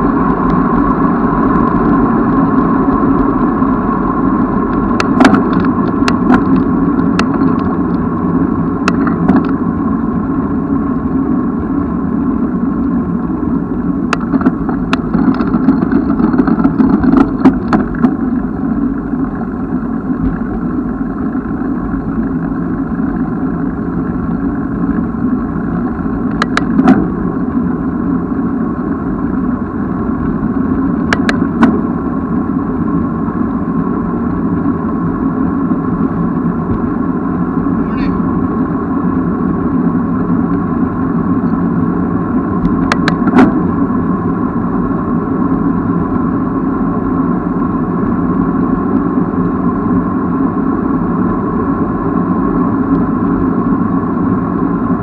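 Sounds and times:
wind and road noise: 0.0 - 55.0
bicycle clicks and rattles: 4.7 - 8.0, 14.1 - 18.2.

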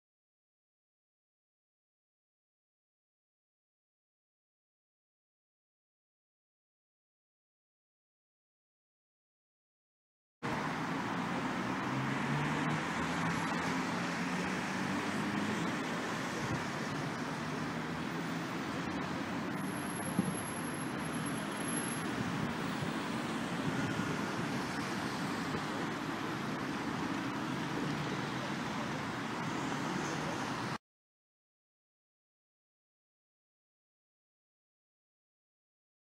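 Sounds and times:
road traffic passing: 10.4 - 30.8
vehicle engine: 10.4 - 30.8.

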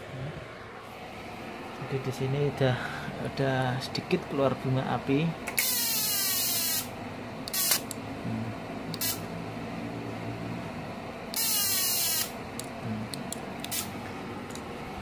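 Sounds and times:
buzzing hissing welding spark: 5.6 - 6.9, 7.5 - 7.9, 9.0 - 9.2, 11.4 - 12.4, 13.6 - 13.9.

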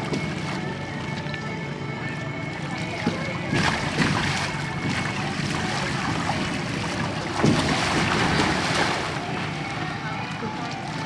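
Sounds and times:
water sloshing and splashing: 0.0 - 11.0
loud splashes: 3.4 - 9.7.

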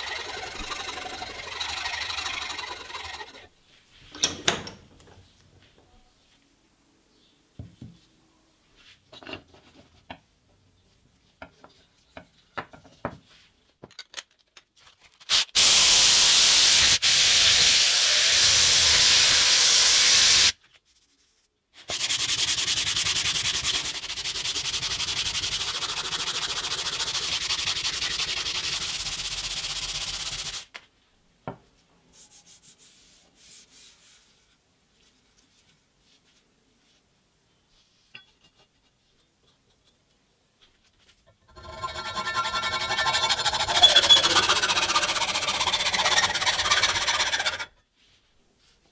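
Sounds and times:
sanding wood by hand: 0.0 - 3.5, 21.8 - 30.7, 41.6 - 47.7.

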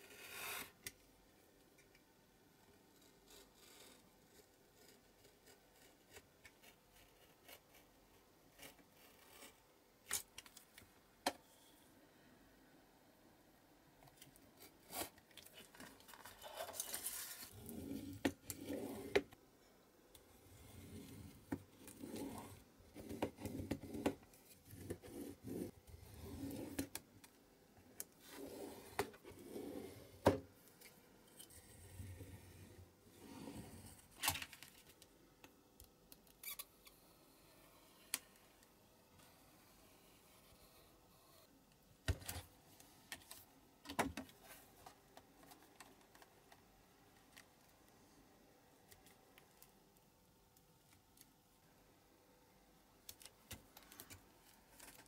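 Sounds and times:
paper rustling: 14.9 - 17.6.

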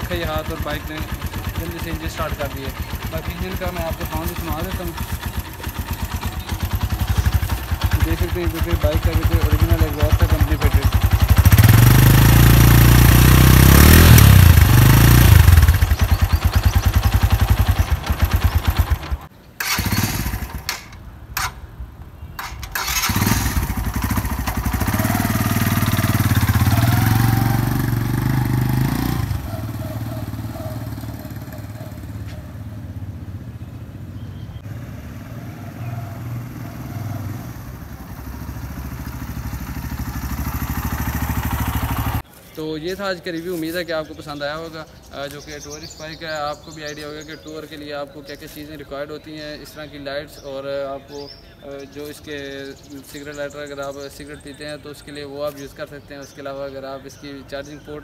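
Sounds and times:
motorcycle engine revving: 0.0 - 21.0, 22.4 - 42.2.

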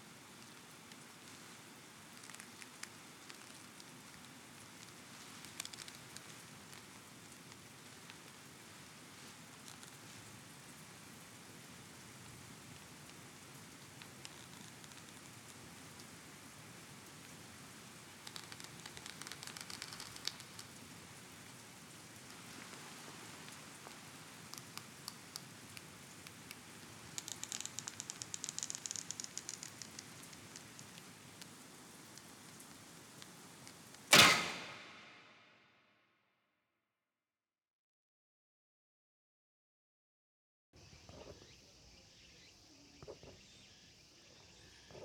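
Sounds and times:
bow creaking and rustling: 18.2 - 20.8, 40.9 - 45.0.

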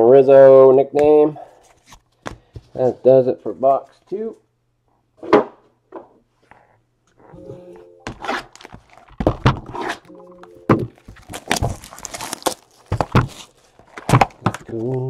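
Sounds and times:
plastic wrap crinkling: 8.1 - 9.5, 10.8 - 15.0
knife slitting plastic wrap: 11.1 - 13.6.

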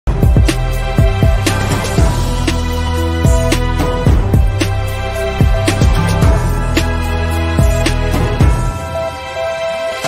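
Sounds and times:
theme music with steady beat: 0.1 - 10.0.

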